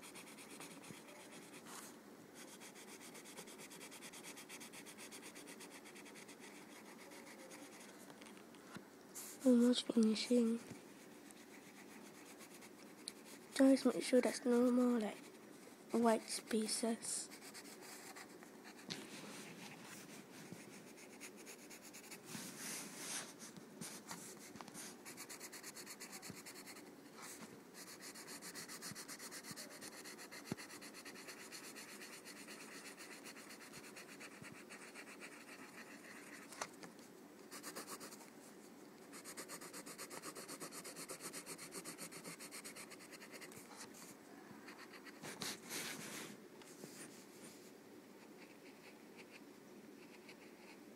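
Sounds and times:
pencil scribbling on paper: 0.0 - 7.9, 10.4 - 15.4, 17.2 - 18.9, 20.5 - 22.2, 23.1 - 36.5, 37.5 - 38.2, 39.1 - 43.9, 44.7 - 46.1.

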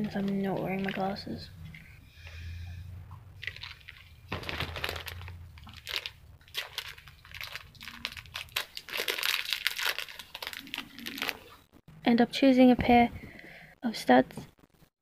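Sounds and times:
packaging crinkling: 3.4 - 11.7.

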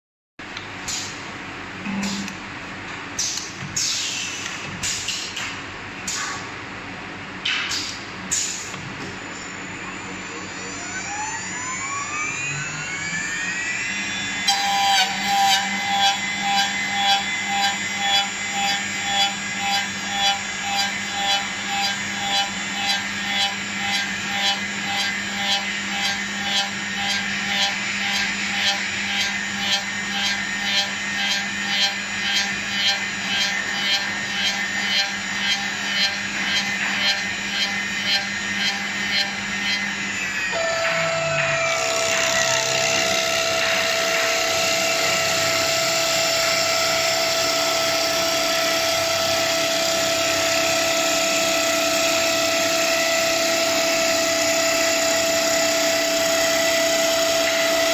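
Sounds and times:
steady motor hum: 0.4 - 57.9
spindle motor whine: 9.0 - 57.9
cutter machining wood: 9.9 - 57.9.

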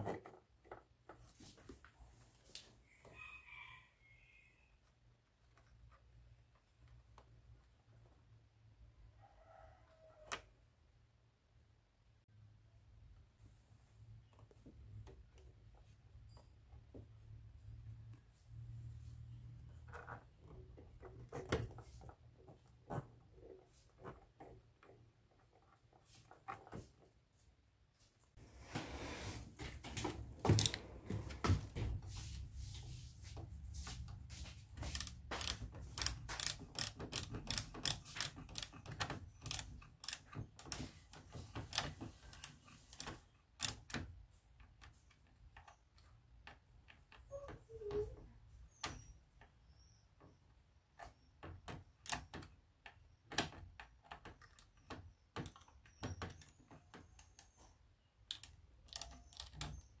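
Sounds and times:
plastic and metal parts clicking: 30.0 - 31.7, 34.8 - 47.2, 51.0 - 60.0.

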